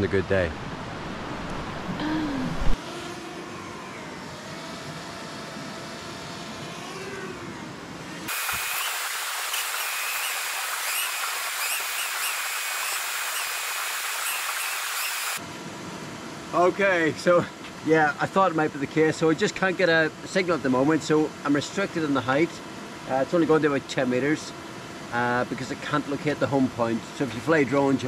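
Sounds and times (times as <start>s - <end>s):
drone propellers whining: 0.9s - 15.4s.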